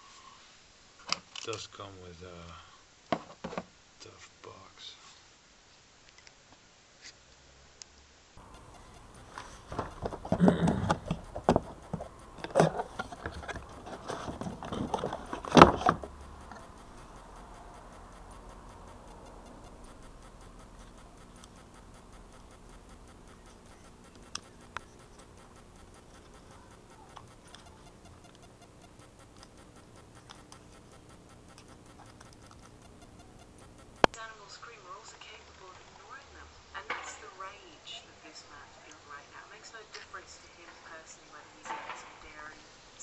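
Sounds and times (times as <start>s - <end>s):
cardboard box handling: 8.4s - 16.8s
small clicks: 8.4s - 34.2s.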